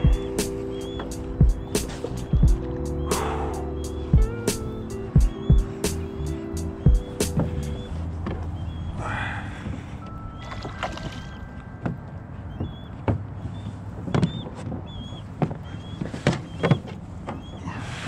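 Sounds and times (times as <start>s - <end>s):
water splashing: 10.3s - 11.8s.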